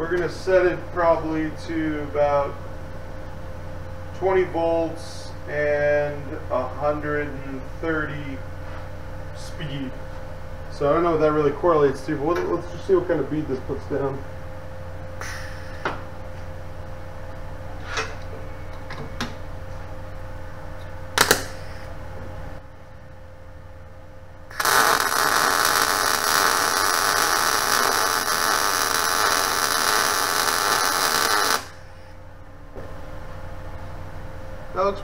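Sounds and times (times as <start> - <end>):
welding arc sizzling: 24.4 - 32.2.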